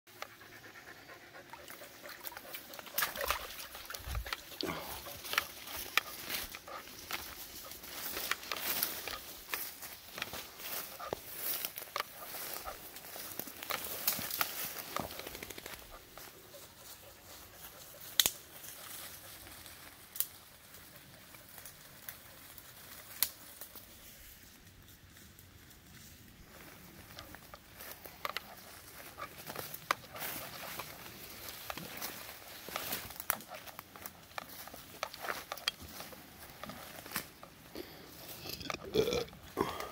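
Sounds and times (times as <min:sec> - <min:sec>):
footsteps through leaves and twigs: 0:01.5 - 0:39.9
twig snapping: 0:18.0 - 0:18.4, 0:23.1 - 0:23.7.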